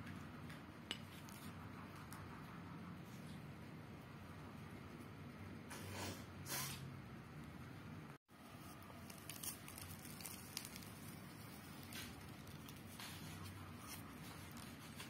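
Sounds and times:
pastry crackling as torn apart: 8.7 - 15.0.

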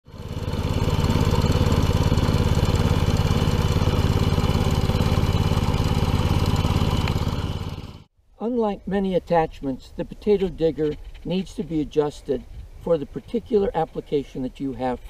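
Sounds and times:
small tractor engine running: 0.0 - 8.1.

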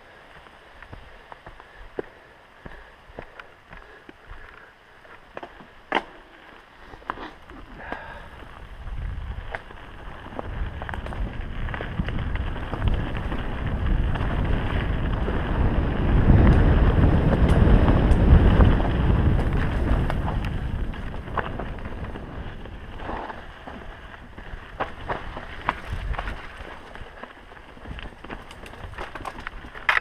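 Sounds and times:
bike tyre rumble on dirt: 0.0 - 30.0
bike clicking and rattling over rocks: 3.4 - 30.0
wind buffeting microphone: 7.0 - 30.0.

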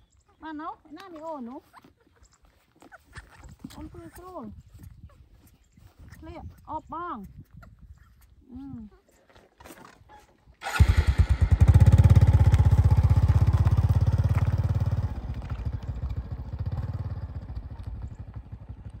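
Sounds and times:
small motorcycle engine: 10.6 - 19.0.

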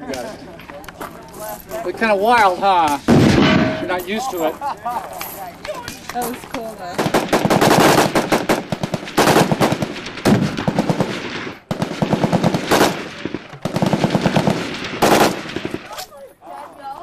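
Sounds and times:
rifle firing automatic bursts: 6.9 - 16.0.

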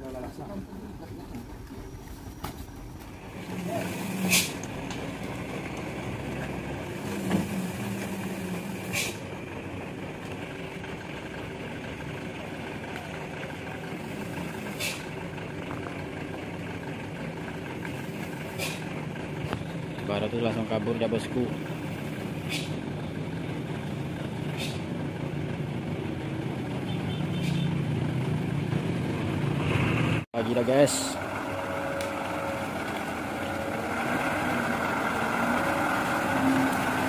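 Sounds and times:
truck diesel engine: 0.0 - 37.0
air brake hisses: 4.2 - 4.6, 8.8 - 9.2, 14.6 - 15.1, 18.5 - 18.9, 22.4 - 22.8, 24.5 - 24.9.

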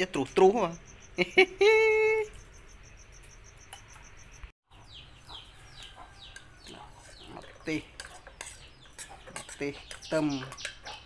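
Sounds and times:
crickets chirping: 0.0 - 4.5
chicks peeping: 4.7 - 11.0.

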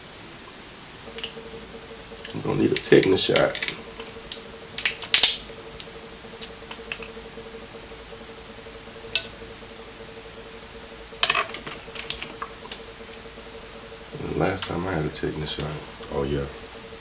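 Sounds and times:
faint steady hum: 0.0 - 17.0
seafood shells cracking: 2.1 - 7.1.

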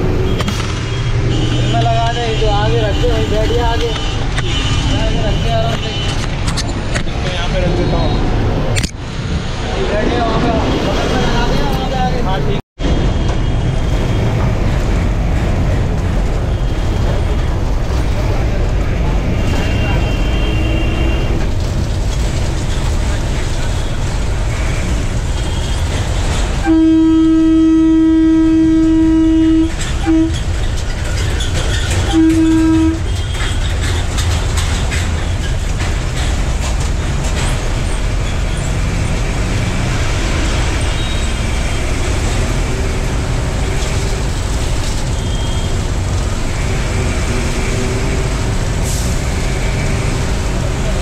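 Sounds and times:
bus engine and road rumble: 0.0 - 51.0
bus horn blasts: 1.0 - 6.2, 19.4 - 21.4, 26.6 - 30.4, 32.1 - 33.4.

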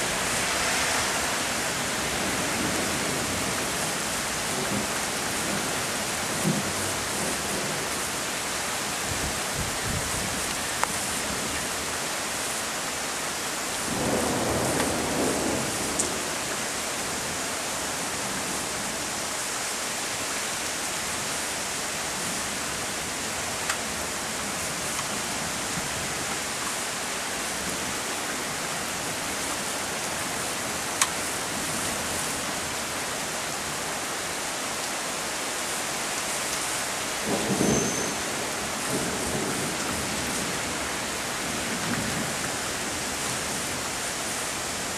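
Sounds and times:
steady rain hissing: 0.0 - 44.9
low rolls of thunder: 13.8 - 16.5.

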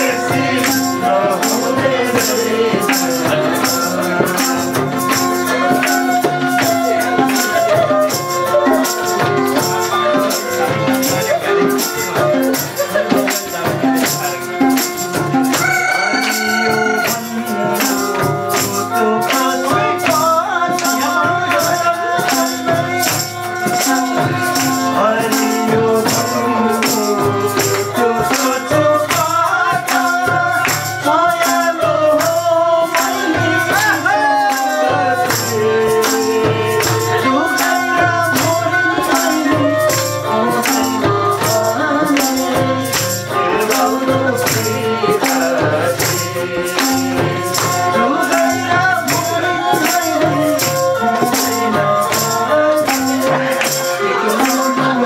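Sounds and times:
bowed string instrument: 0.0 - 55.0
hand drum beat: 0.0 - 55.0
jingling percussion: 0.0 - 55.0
man singing: 0.0 - 55.0.

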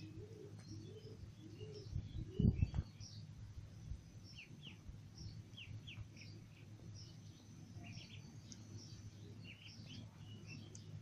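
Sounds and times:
faint low hum: 0.0 - 11.0
ducklings peeping: 4.3 - 11.0.

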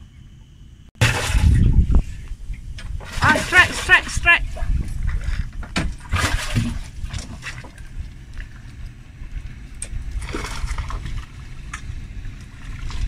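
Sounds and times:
steady low rumble: 4.4 - 13.0
fish splashing at water surface: 6.0 - 7.8.

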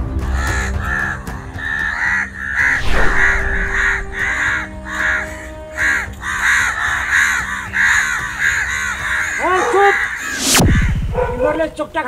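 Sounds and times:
crows cawing: 0.0 - 2.8, 3.7 - 11.4
loud falling whoosh: 2.6 - 4.8.

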